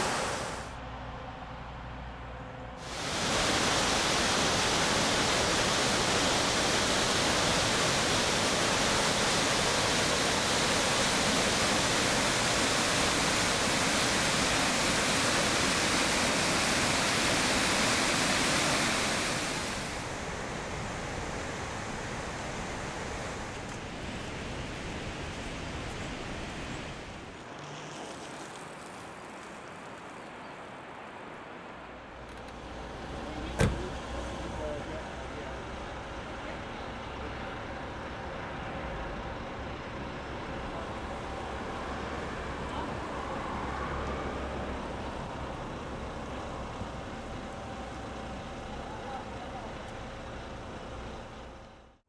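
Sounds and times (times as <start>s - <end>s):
waterfall roaring: 0.0s - 0.7s, 2.8s - 34.2s.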